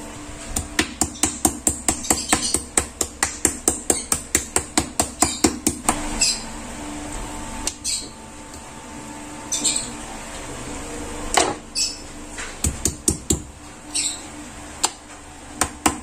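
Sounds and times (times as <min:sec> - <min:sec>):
meat pounding on cutting board: 0:00.8 - 0:05.9.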